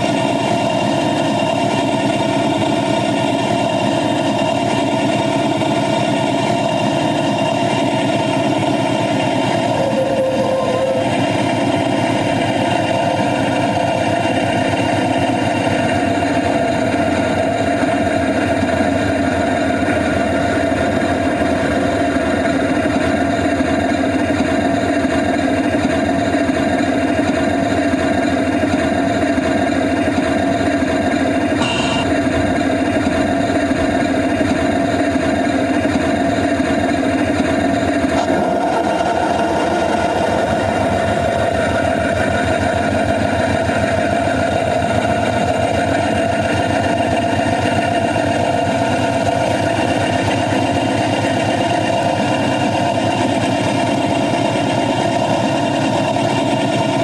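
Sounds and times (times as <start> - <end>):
small train engine running: 0.0 - 57.0
high-pitched tone: 9.4 - 11.8, 31.6 - 32.3.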